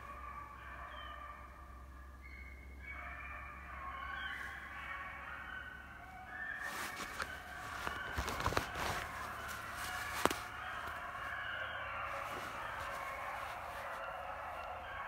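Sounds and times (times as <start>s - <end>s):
dogs baying: 0.0s - 15.0s
twigs and dry leaves snapping: 6.6s - 11.4s.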